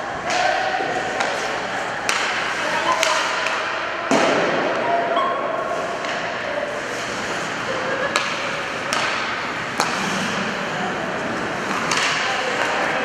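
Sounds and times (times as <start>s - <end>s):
hockey sticks and puck clacking: 0.1s - 4.9s, 5.5s - 13.0s
skates on ice: 5.6s - 13.0s.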